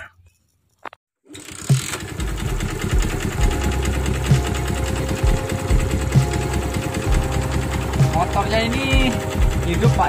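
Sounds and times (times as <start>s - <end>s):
motorcycle engine idling: 1.4s - 10.0s.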